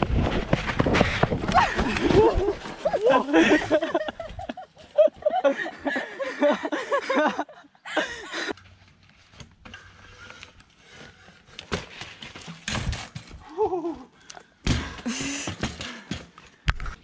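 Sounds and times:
unicycle crashing thump: 11.7 - 13.4, 14.6 - 15.9
person crying out: 13.4 - 14.1.

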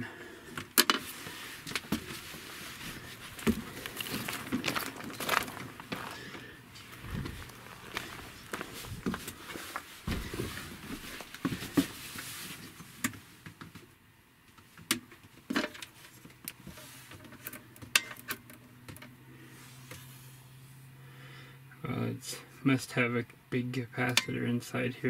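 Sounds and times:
faint low hum: 0.0 - 14.6
footsteps: 1.0 - 12.9.

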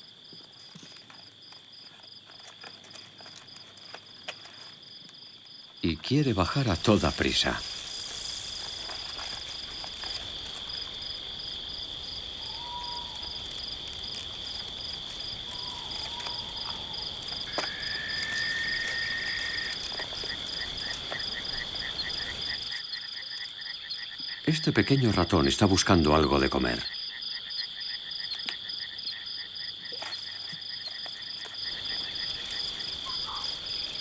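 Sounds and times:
crickets chirring: 0.0 - 34.0
faint whistled calls: 12.4 - 13.4, 15.5 - 19.8.

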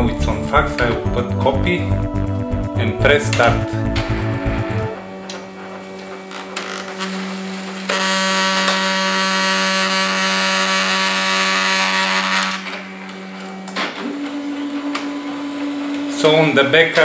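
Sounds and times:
fax machine hum: 11.6 - 17.0.

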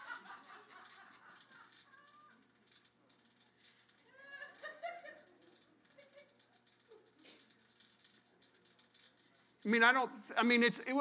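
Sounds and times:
faint laughter: 0.0 - 2.3, 4.1 - 7.6
faint chuckle: 4.1 - 7.6.

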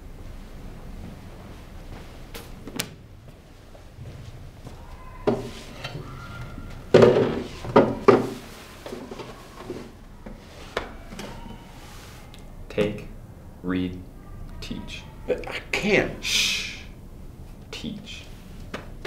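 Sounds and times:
chair scraping and bumping: 4.0 - 12.2.

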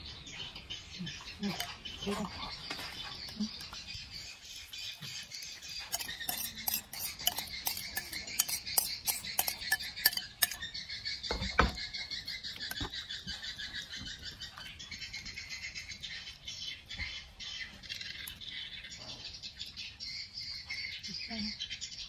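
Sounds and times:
steady high chirring: 5.3 - 11.3
metal spoon scraping ceramic bowl: 5.6 - 10.8.

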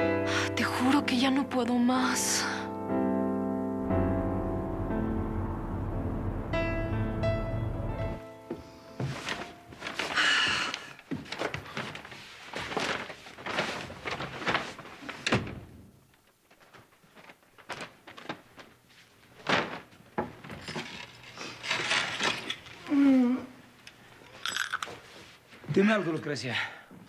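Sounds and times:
footsteps on hard floor: 8.2 - 13.4
paper bags rustling: 9.0 - 22.8
door opening and thudding shut: 15.2 - 15.8.

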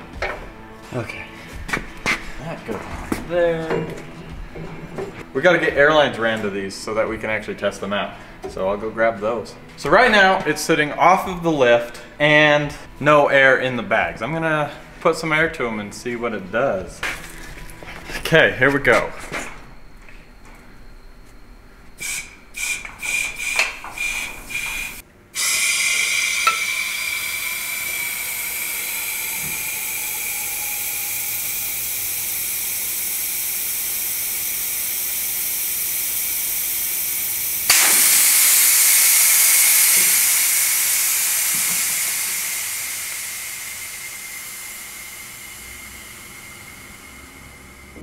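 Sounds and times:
compressed air hissing: 22.0 - 48.0.

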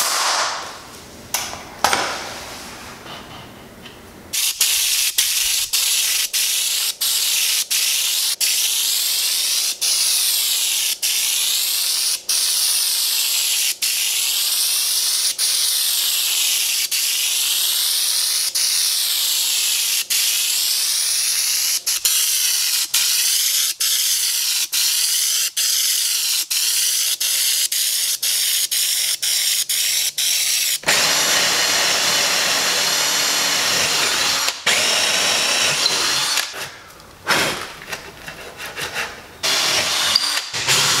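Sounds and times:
spray gun hissing: 4.4 - 12.0
drill boring into wood: 30.8 - 36.6, 39.4 - 41.0.

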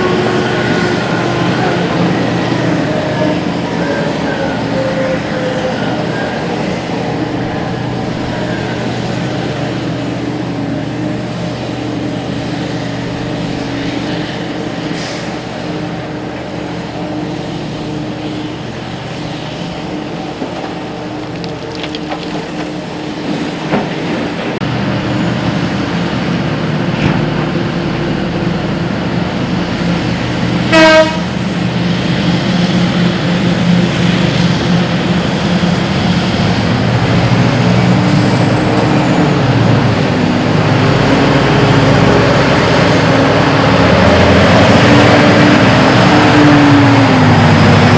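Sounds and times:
diesel engines running: 0.0 - 47.9
short horn toot: 30.7 - 31.3.

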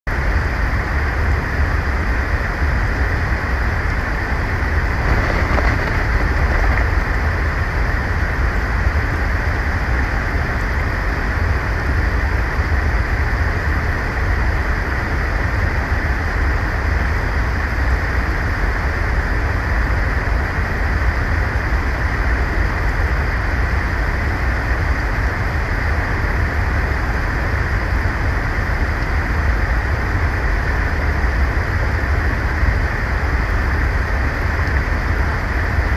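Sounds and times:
wind on microphone: 1.3 - 13.6.

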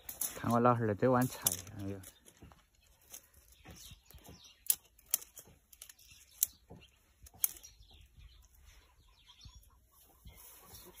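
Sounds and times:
stems and leaves rustling: 0.0 - 11.0
plant stalks snapping: 4.1 - 6.6.

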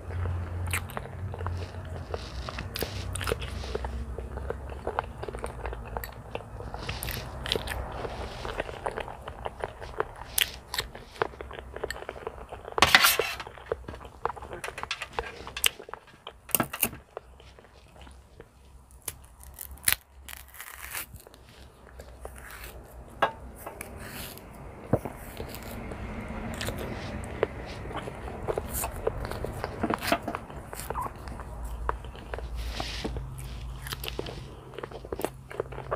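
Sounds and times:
person chewing banana: 0.0 - 12.8, 13.4 - 35.9
banana peel tearing: 19.0 - 21.4.

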